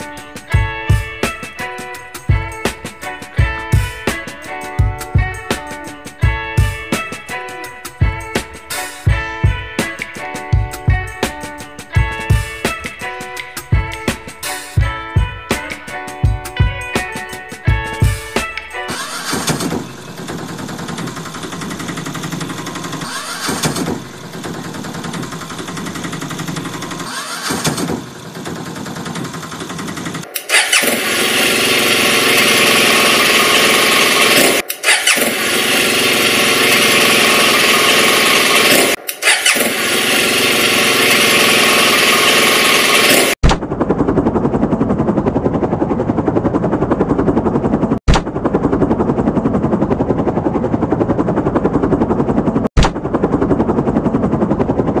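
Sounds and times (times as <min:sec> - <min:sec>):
helicopter rotor chopping: 0:00.0 - 0:55.0
rough motorcycle-like engine: 0:18.9 - 0:55.0.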